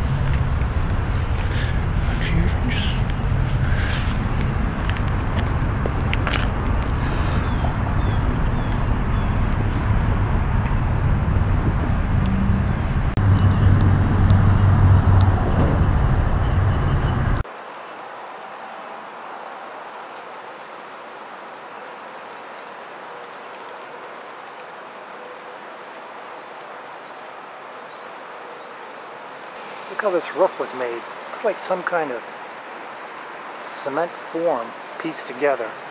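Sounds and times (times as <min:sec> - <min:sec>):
low rumble: 0:00.0 - 0:17.4
insects buzzing and chirping: 0:00.0 - 0:35.9.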